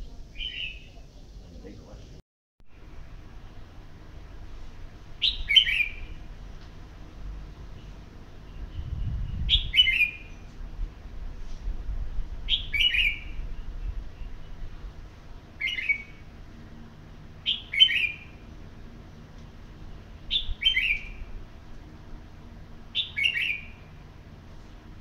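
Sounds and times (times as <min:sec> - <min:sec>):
bird singing falling phrases: 0:00.1 - 0:01.0, 0:05.2 - 0:06.3, 0:07.7 - 0:10.5, 0:12.5 - 0:14.8, 0:15.5 - 0:16.3, 0:17.4 - 0:18.6, 0:19.8 - 0:21.4, 0:22.9 - 0:24.0.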